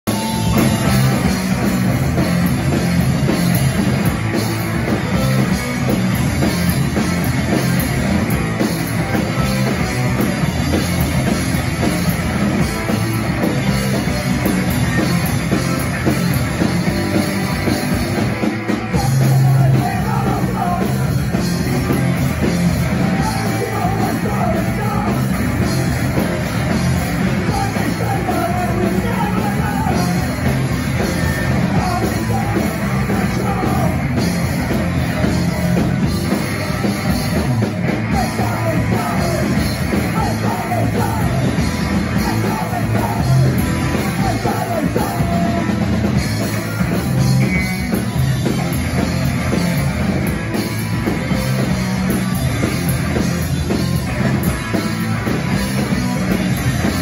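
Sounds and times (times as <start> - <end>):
bass guitar: 0.0 - 57.0
drum kit: 0.0 - 57.0
electric guitars: 0.0 - 57.0
person singing: 18.9 - 21.2, 23.0 - 25.4, 27.3 - 30.6, 31.2 - 34.3, 38.0 - 45.9.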